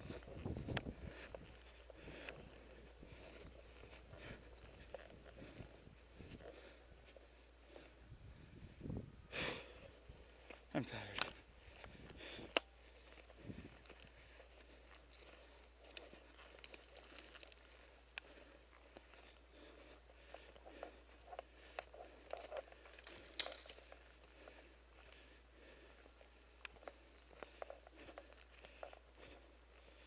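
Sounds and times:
brush crackling: 0:00.0 - 0:08.0, 0:09.4 - 0:30.0
footsteps crunching dry grass: 0:00.0 - 0:30.0
twig snapping: 0:23.0 - 0:23.8.

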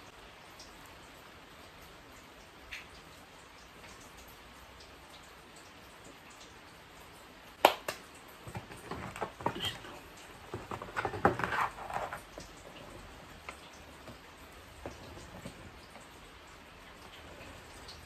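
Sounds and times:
plastic rustling: 0:08.4 - 0:16.2.

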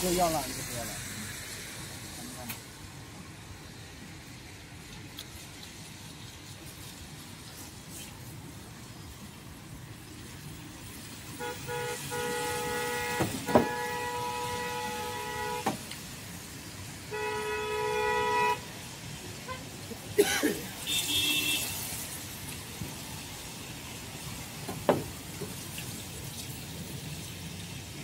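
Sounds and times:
low street background noise: 0:00.0 - 0:28.0
vehicle horn blast: 0:11.4 - 0:15.8, 0:17.1 - 0:18.7, 0:20.8 - 0:21.7
sharp knocks: 0:13.2 - 0:13.8, 0:24.7 - 0:25.5.

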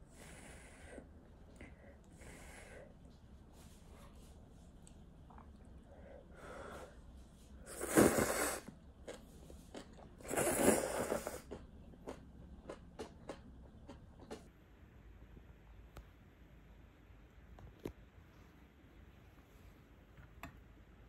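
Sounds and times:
person slurping noodles: 0:07.7 - 0:08.7, 0:09.7 - 0:11.6
chewing: 0:08.7 - 0:14.5.

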